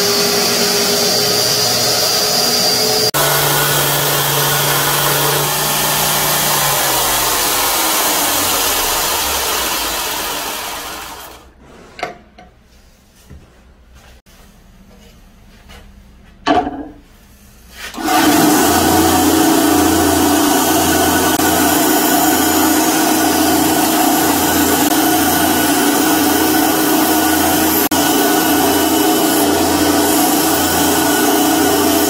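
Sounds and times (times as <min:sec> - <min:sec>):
bandsaw cutting wood: 0:00.0 - 0:11.5, 0:17.9 - 0:32.0
belt grinder running: 0:00.0 - 0:11.5, 0:18.0 - 0:32.0.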